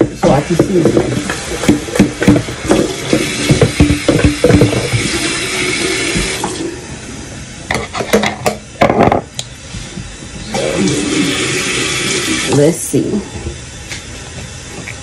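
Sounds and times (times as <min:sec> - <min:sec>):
bowl and utensils clattering: 0:00.0 - 0:05.5
tap running into sink: 0:00.0 - 0:06.7.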